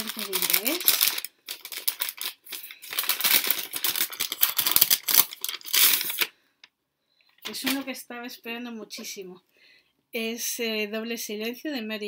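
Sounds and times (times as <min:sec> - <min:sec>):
wrapping paper crinkling and tearing: 0:00.0 - 0:06.3.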